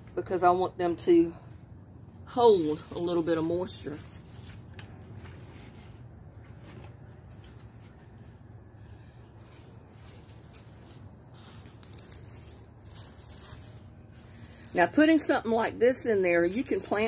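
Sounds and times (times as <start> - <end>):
steady low hum: 0.0 - 17.0
vine cuttings rustling in a bucket: 2.3 - 8.5, 9.2 - 17.0
light crackles: 9.4 - 15.0.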